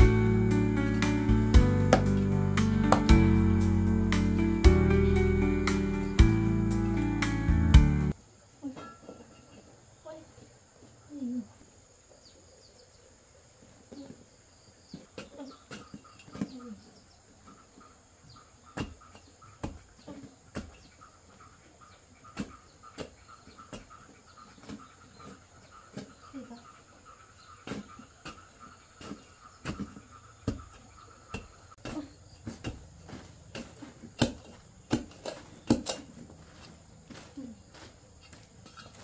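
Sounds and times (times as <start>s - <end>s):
insect chirping: 8.1s - 39.0s.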